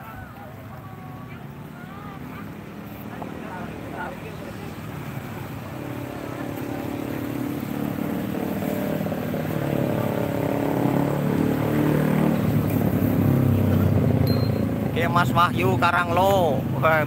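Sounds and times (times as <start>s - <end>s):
motorcycle engines running: 0.0s - 17.0s.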